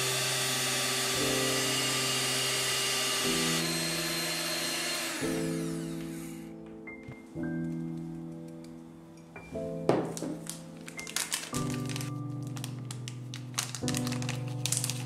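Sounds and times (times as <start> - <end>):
electric hand mixer whirring: 0.0 - 6.6
soft background music: 0.3 - 15.0.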